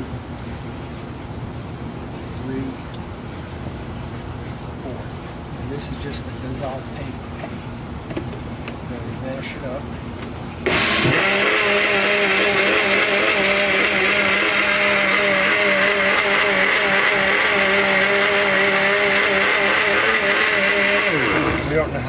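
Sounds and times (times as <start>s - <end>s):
blender running: 10.6s - 21.9s.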